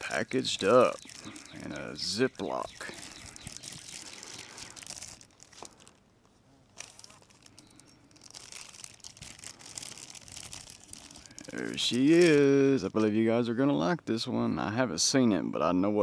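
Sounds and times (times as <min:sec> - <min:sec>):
plastic bag crinkling: 0:00.0 - 0:06.0, 0:06.7 - 0:13.0.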